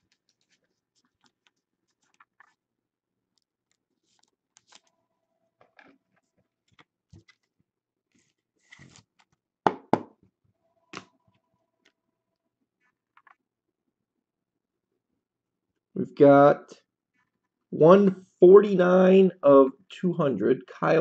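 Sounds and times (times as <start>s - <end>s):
cards and plastic sleeves rustling: 0.0s - 2.7s, 3.4s - 5.0s, 5.6s - 9.4s.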